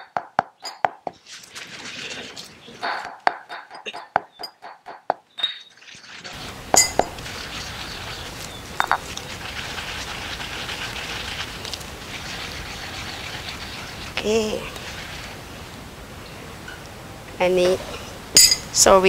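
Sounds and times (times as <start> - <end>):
stone pestle pounding in mortar: 0.0 - 1.2
steady hiss: 5.9 - 19.0.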